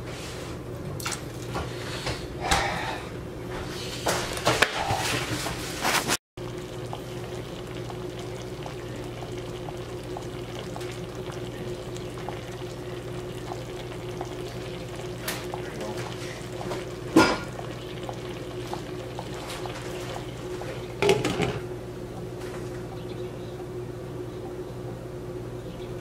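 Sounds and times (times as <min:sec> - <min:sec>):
pan simmering with bubbles: 0:04.1 - 0:23.1
low hum: 0:06.4 - 0:26.0
liquid splashing into pan: 0:06.5 - 0:21.6.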